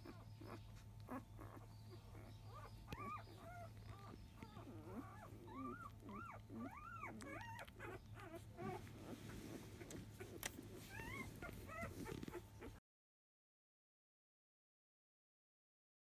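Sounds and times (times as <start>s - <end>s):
faint low hum: 0.0s - 12.8s
puppies squeaking and whimpering: 0.0s - 12.8s.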